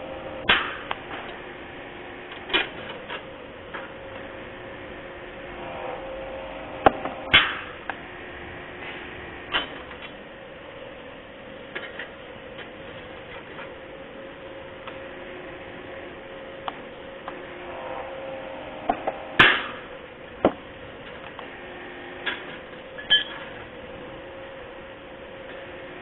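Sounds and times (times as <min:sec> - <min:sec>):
hydraulic press humming: 0:00.0 - 0:26.0
punch cracking through steel plate: 0:00.5 - 0:00.9, 0:07.3 - 0:07.8, 0:19.4 - 0:19.8.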